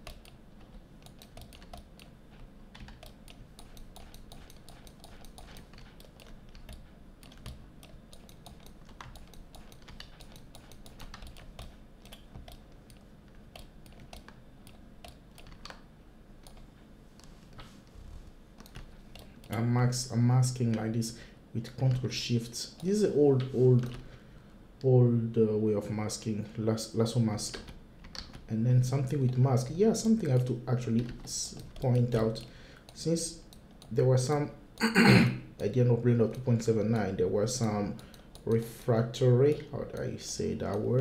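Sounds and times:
computer keyboard clicking: 0.0 - 17.3, 18.6 - 19.6, 27.4 - 34.0, 36.2 - 41.0.

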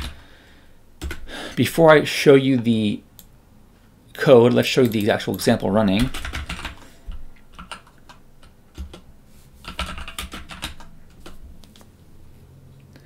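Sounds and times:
typing on computer keyboard: 0.0 - 0.2, 1.0 - 1.3, 5.9 - 11.4.

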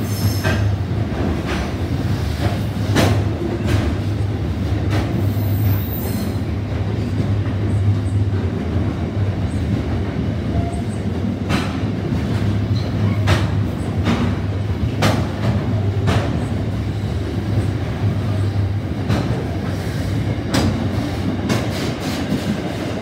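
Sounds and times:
train wheels rumbling on rail: 0.0 - 23.0
wheels clacking over rail joints: 0.2 - 22.9.

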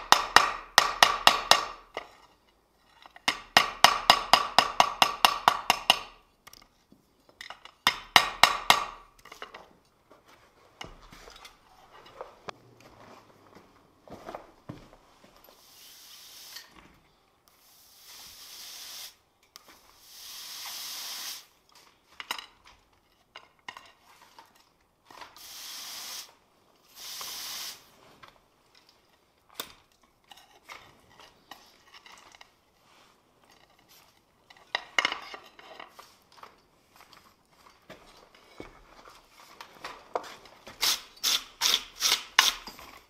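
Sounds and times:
hot steel hissing and sizzling: 15.6 - 16.8, 17.6 - 19.2, 20.0 - 21.6, 25.4 - 28.0.

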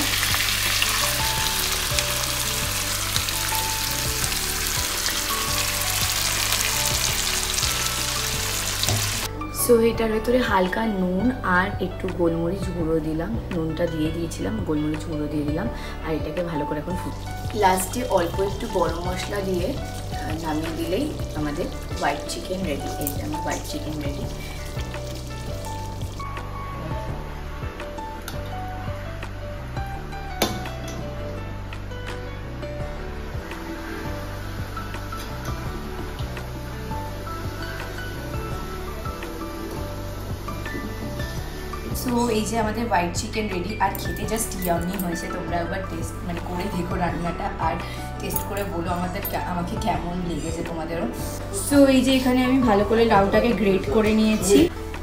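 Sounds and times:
food sizzling in oil: 0.0 - 9.3, 16.5 - 26.6
bass line: 0.0 - 10.2
light melodic background music: 0.0 - 55.0.

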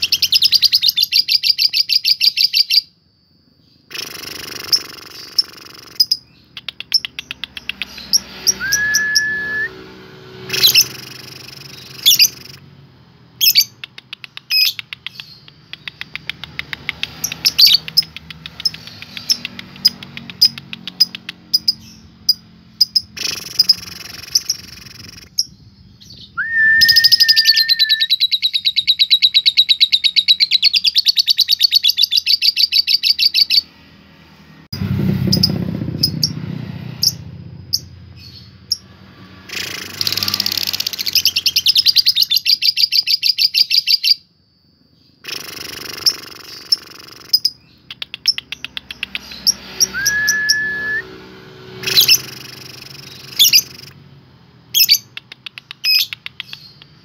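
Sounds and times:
lovebird chattering trills: 3.8 - 9.3, 10.5 - 12.6, 13.4 - 26.3, 45.2 - 50.2, 51.8 - 54.0, 54.7 - 57.0
steady whistled note: 8.5 - 9.9, 26.4 - 28.0, 49.8 - 51.3.

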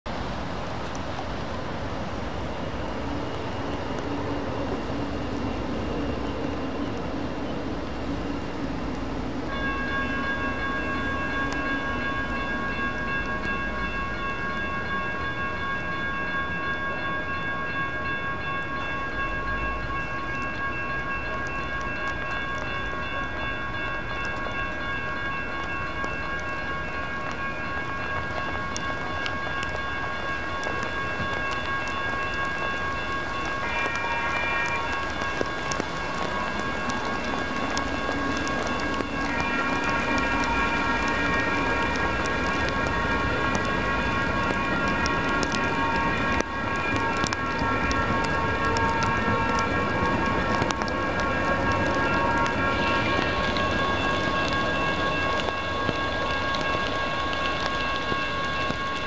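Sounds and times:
steady wash of noise: 0.1 - 16.2
light rail train approaching: 0.1 - 59.0.

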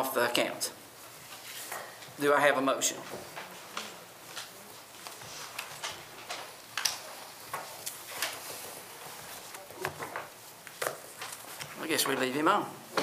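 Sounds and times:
papers rustling: 2.9 - 13.0.

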